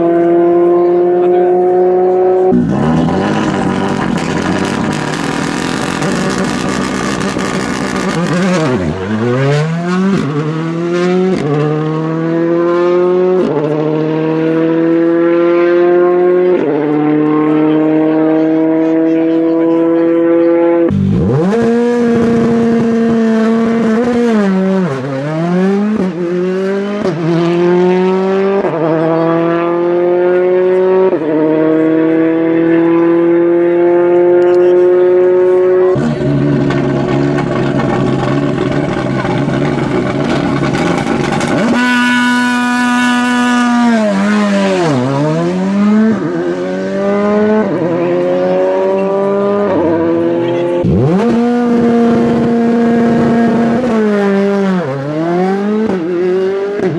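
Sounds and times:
rally car engine launching and upshifting: 0.0s - 56.9s
rough steady engine note: 0.2s - 10.2s, 33.9s - 46.5s.

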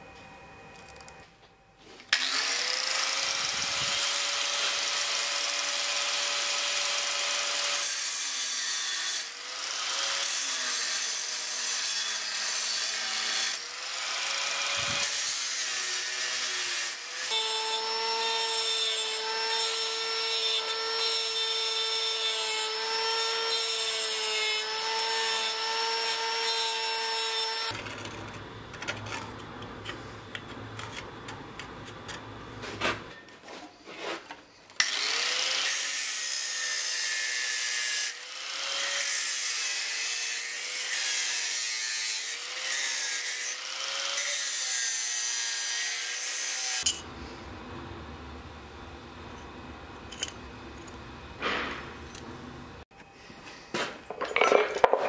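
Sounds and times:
angle grinder cutting sheet metal: 2.1s - 28.4s, 34.8s - 47.1s.

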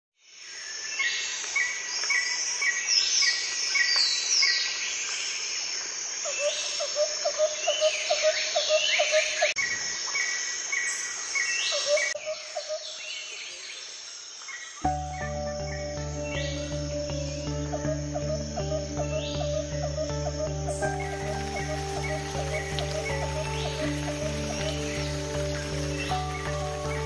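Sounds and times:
birds chirping and whistling: 14.8s - 27.0s
steady high hiss: 14.8s - 27.0s.

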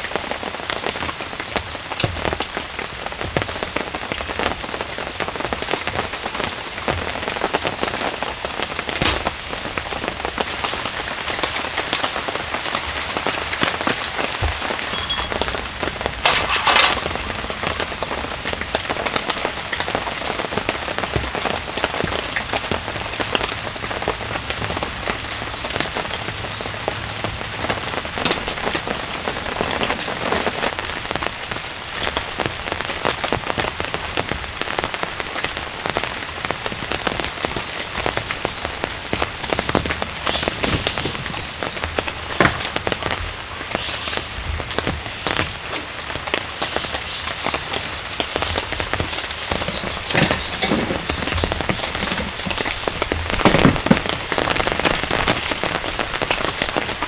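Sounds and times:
heavy rain on tarp and leaves: 0.0s - 57.0s
camp gear clicking and clinking: 14.4s - 17.4s, 49.2s - 54.1s.

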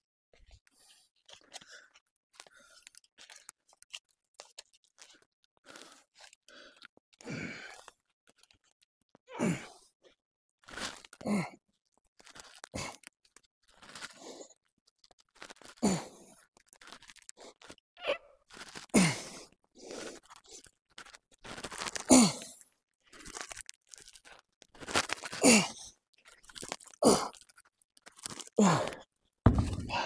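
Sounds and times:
man grunting exhales: 29.6s - 30.0s.

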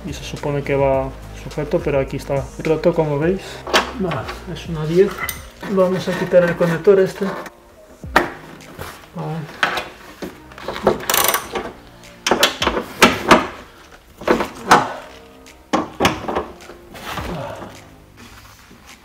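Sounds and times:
faint background music: 0.0s - 19.0s
hand tool clicking on nut: 10.8s - 13.6s.

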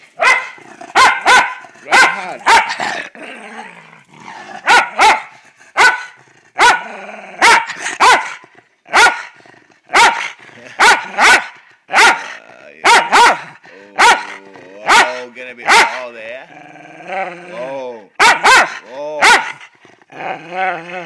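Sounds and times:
dog barking: 0.2s - 2.9s, 4.6s - 16.1s, 18.2s - 19.7s.

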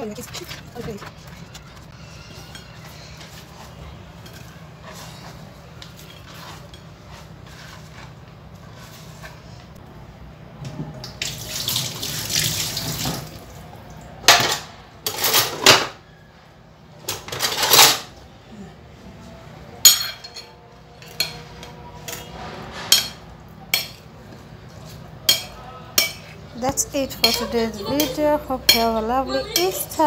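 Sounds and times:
water running from tap: 11.2s - 13.4s.

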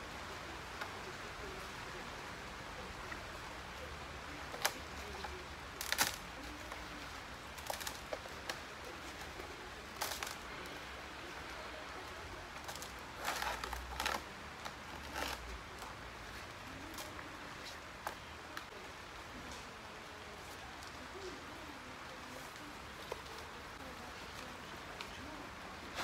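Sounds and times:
plant leaves rustling: 0.0s - 26.0s
steady background hiss: 0.0s - 26.0s.

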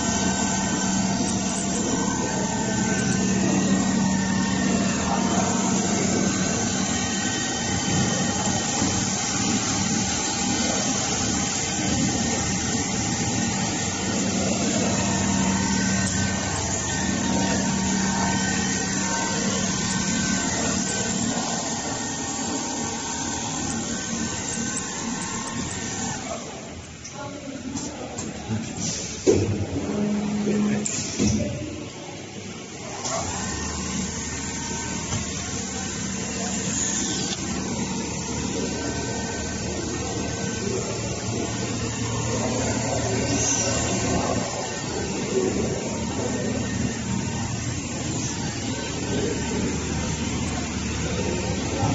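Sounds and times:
sewing machine running: 0.0s - 26.7s.

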